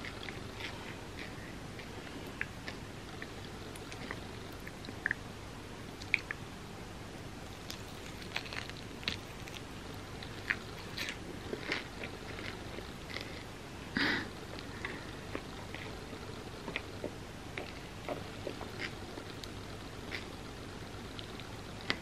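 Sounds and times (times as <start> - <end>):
biting and chewing crunchy bar: 7.5 - 13.5.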